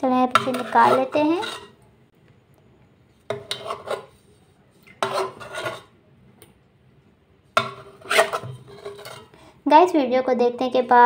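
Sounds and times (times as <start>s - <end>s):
metal spoon scraping bowl: 0.2s - 1.8s, 3.2s - 6.0s, 7.6s - 9.4s.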